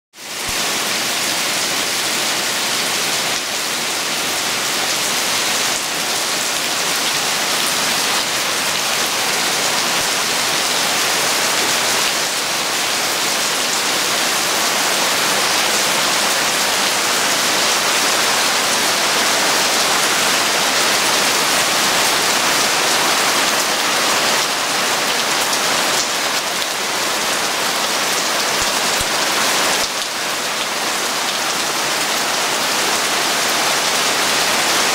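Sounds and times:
heavy rain pouring: 0.2s - 34.9s.

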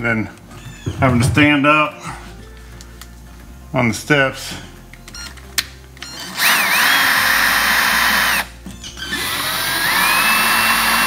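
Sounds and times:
cordless drill driving screws: 6.1s - 11.0s.

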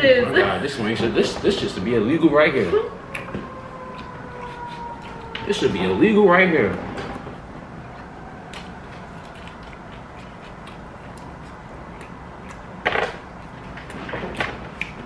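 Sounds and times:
chewing: 3.0s - 15.0s.

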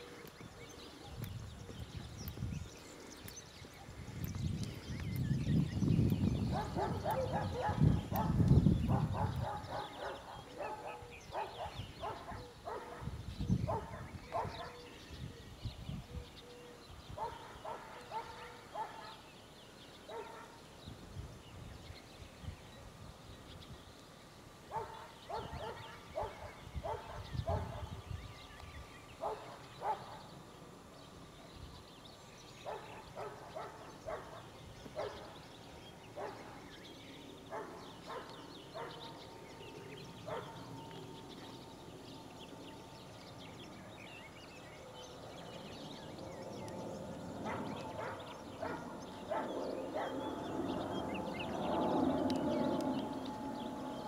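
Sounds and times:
distant dog barking: 6.5s - 14.9s, 17.2s - 19.2s, 20.1s - 20.6s, 24.7s - 28.0s, 29.2s - 30.3s, 32.6s - 35.4s, 36.2s - 36.6s, 37.5s - 39.2s, 40.2s - 40.8s, 47.4s - 50.7s.

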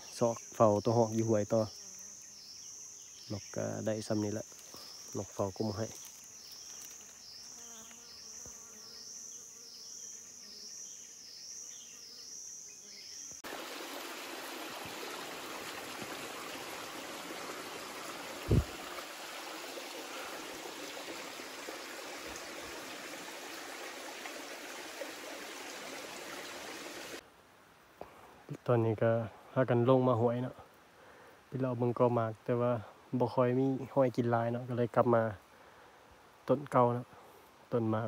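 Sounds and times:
stream trickling over rocks: 13.4s - 27.2s.

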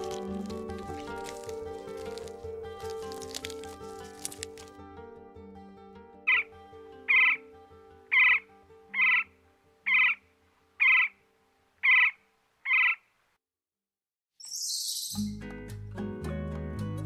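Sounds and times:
soft background music: 0.0s - 11.2s
woodpecker calls: 6.3s - 6.5s, 7.1s - 10.2s, 10.8s - 11.2s, 11.8s - 13.1s.

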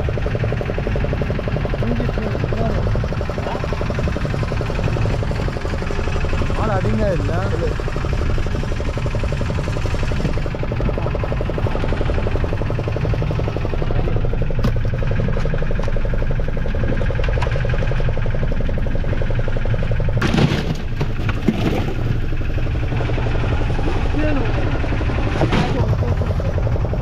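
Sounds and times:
boat engine running: 0.0s - 27.0s.

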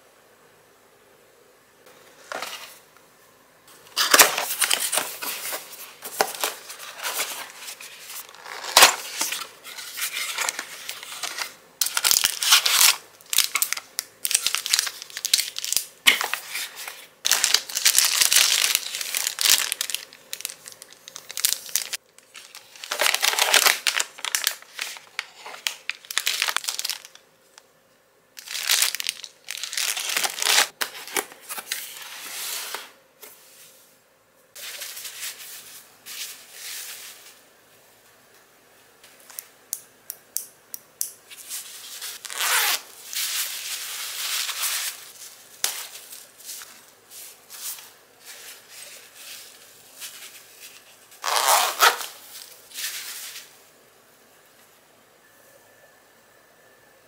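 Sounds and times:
plastic packaging crinkling: 4.0s - 27.2s, 28.4s - 31.9s, 41.5s - 46.9s, 47.5s - 53.5s.

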